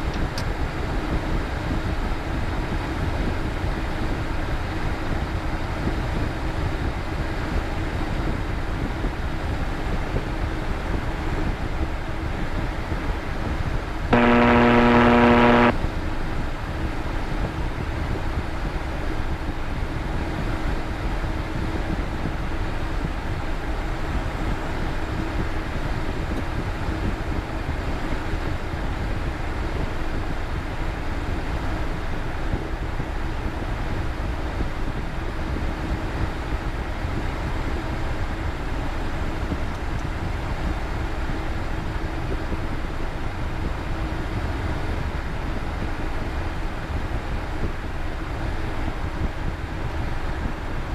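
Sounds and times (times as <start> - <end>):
loud buzzing tone: 14.1 - 15.8.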